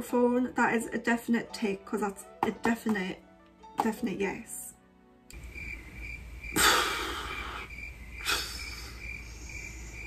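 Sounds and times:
crickets chirping: 5.3 - 10.0.

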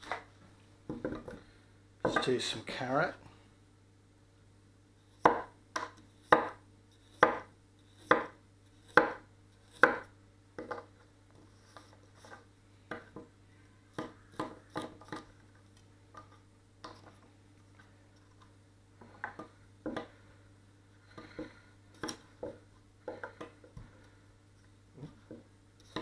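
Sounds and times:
knife slicing carrot on board: 5.2 - 10.1.

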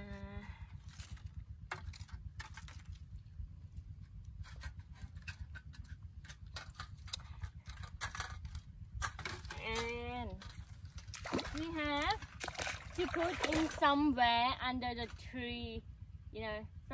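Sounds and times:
steady low rumble: 0.0 - 16.9.

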